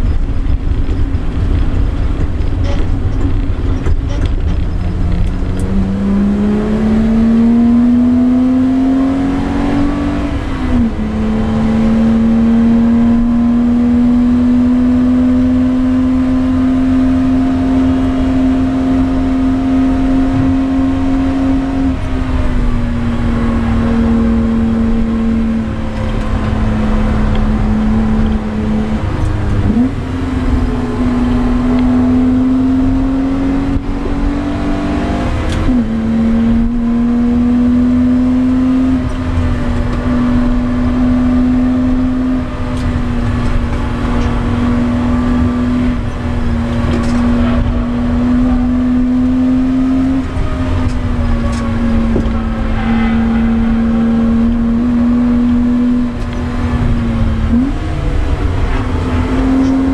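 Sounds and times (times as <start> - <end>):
car engine at high revs: 0.0 - 59.9
tyre and wind noise: 0.0 - 59.9.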